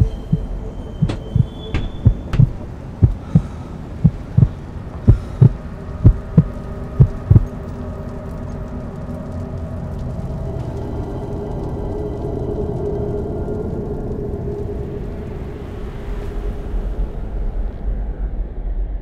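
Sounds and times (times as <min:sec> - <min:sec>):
heartbeat sound effect: 0:00.0 - 0:03.4, 0:04.0 - 0:07.5
steady low hum: 0:00.0 - 0:07.5.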